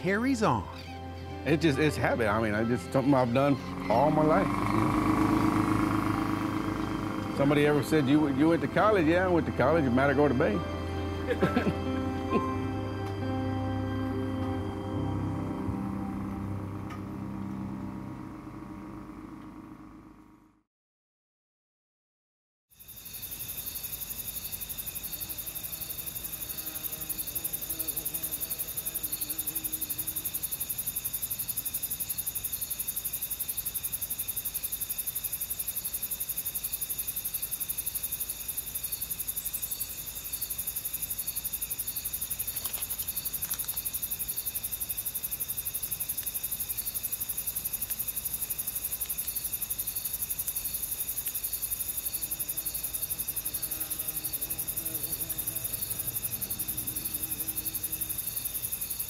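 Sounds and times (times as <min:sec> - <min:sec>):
high-pitched insect chorus: 0:00.0 - 0:15.1, 0:22.8 - 0:59.0
low buzz: 0:03.2 - 0:20.6.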